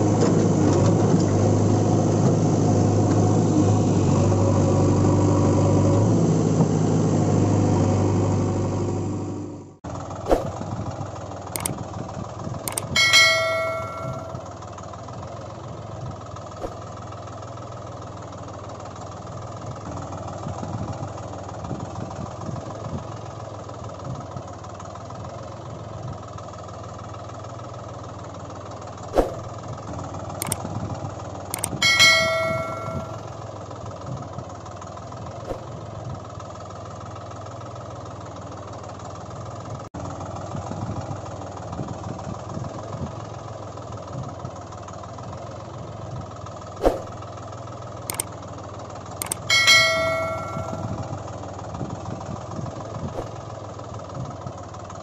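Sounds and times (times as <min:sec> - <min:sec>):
engine idling with low chug: 0:09.8 - 0:55.0
sharp click: 0:11.6 - 0:11.8, 0:12.7 - 0:14.4, 0:30.4 - 0:30.6, 0:31.6 - 0:33.2, 0:49.2 - 0:51.0
bell-like ringing tone: 0:12.7 - 0:14.5, 0:31.6 - 0:33.4, 0:49.2 - 0:51.2.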